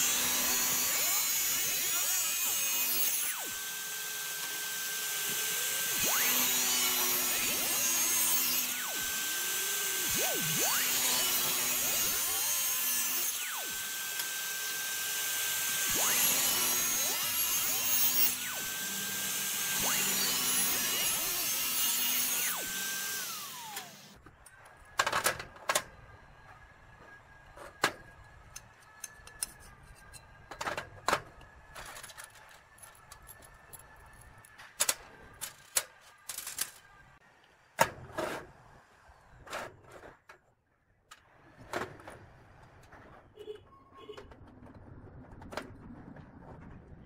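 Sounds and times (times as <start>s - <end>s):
angle grinder whining: 0.0s - 24.2s.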